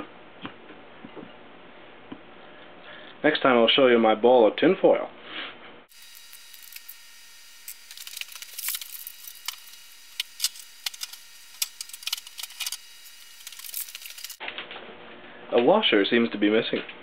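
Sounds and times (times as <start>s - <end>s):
sharp clicks and crackles: 7.6s - 14.8s.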